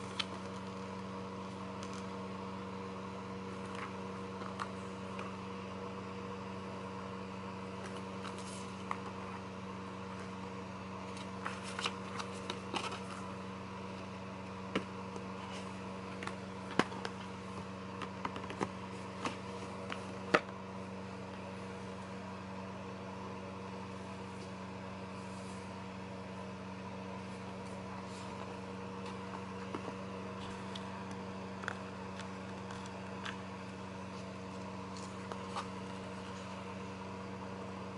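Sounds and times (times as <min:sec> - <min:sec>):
steady hum: 0:00.0 - 0:37.9
paper rustling: 0:11.0 - 0:13.3.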